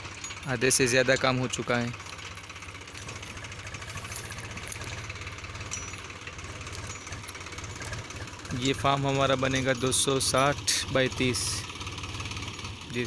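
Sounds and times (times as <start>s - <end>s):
tractor diesel engine knocking: 0.0s - 13.0s.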